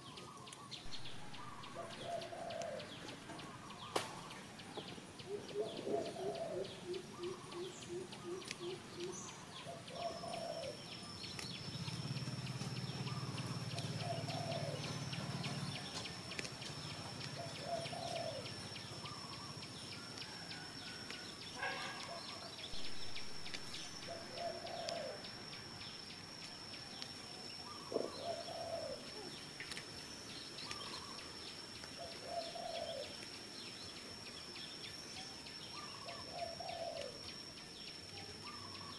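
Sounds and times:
bird cooing: 0.0s - 25.4s, 26.9s - 29.8s, 30.6s - 33.2s, 35.2s - 37.4s, 38.1s - 38.9s
high-pitched whine: 0.0s - 38.9s
low hum: 0.7s - 38.9s
low pulsed notes: 22.6s - 38.8s.

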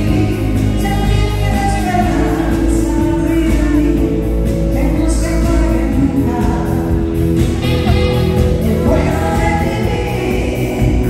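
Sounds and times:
live band playing: 0.0s - 11.0s
woman singing: 0.0s - 11.0s.

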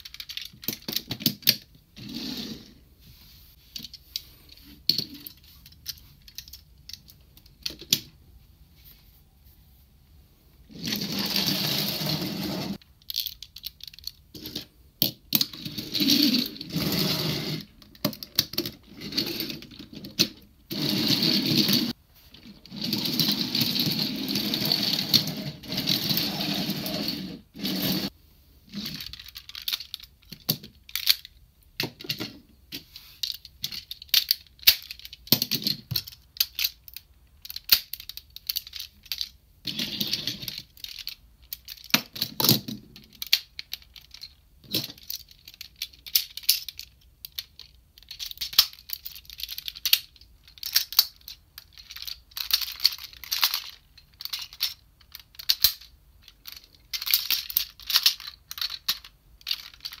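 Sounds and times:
toy train rolling on wooden floor: 10.8s - 12.8s, 22.6s - 28.1s.

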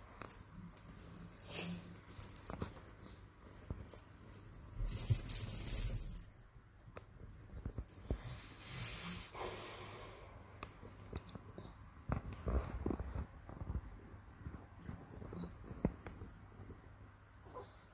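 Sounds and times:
bedding rustling: 0.0s - 6.4s
light jingling: 0.2s - 3.0s, 3.9s - 6.5s.

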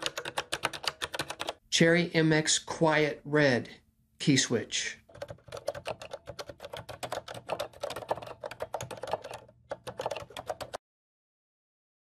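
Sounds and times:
soft keyboard typing: 0.0s - 1.6s, 5.0s - 10.8s.

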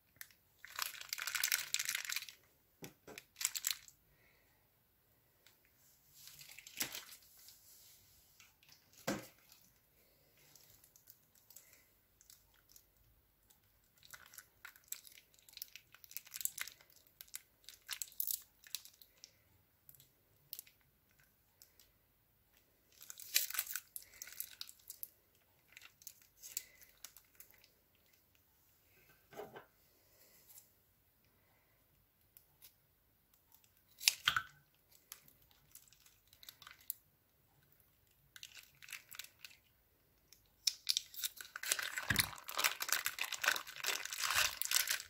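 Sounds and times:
plastic bag of slime crinkling: 0.0s - 4.0s, 6.2s - 7.6s, 8.6s - 21.9s, 22.9s - 28.4s, 33.6s - 37.0s, 38.0s - 45.0s.

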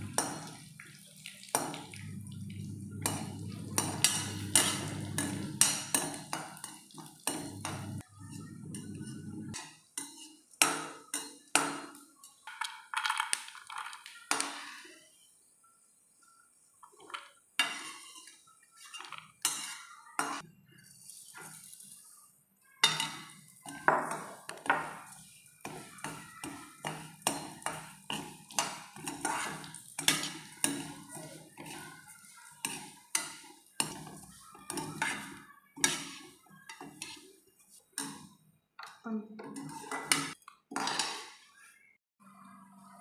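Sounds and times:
spatula scraping metal pan: 3.0s - 10.5s, 17.6s - 20.4s, 22.9s - 38.3s, 39.4s - 41.2s.

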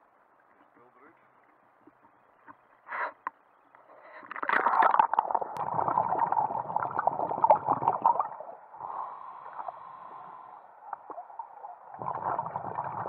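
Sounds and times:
water splashing and bubbling: 4.1s - 13.0s
muffled underwater hiss: 5.6s - 13.0s.

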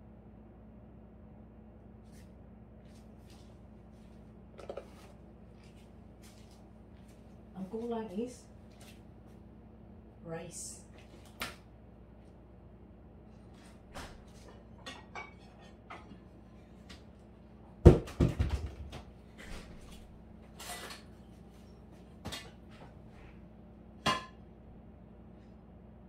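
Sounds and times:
dishes and utensils clattering: 14.4s - 16.2s.

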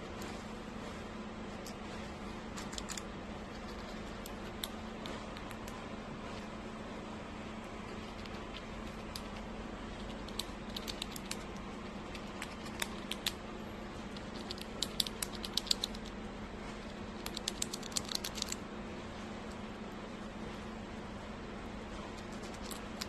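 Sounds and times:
squirrel gnawing nut: 1.4s - 6.5s, 7.3s - 18.6s, 21.9s - 23.0s.

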